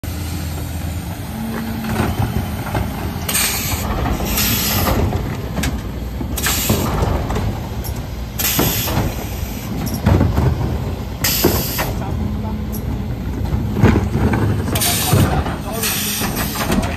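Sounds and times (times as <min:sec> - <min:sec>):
truck engine drone: 0:00.0 - 0:16.9
plastic bins knocking and clattering: 0:03.7 - 0:12.2, 0:12.9 - 0:16.9.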